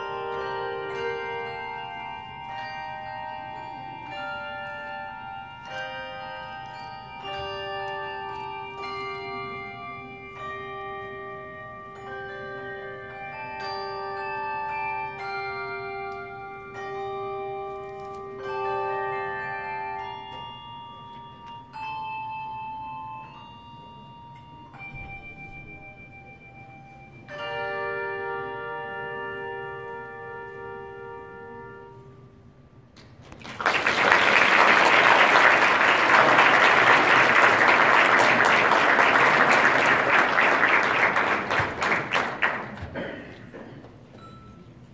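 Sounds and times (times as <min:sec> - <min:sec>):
handbells ringing chords: 0:00.0 - 0:32.3, 0:44.1 - 0:44.9
audience applause: 0:33.3 - 0:43.1.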